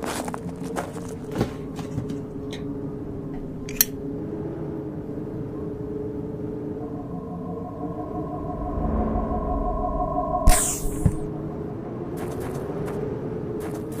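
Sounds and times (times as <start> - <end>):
low ambient drone: 0.1 - 12.2
held synthesizer tone: 5.1 - 11.8.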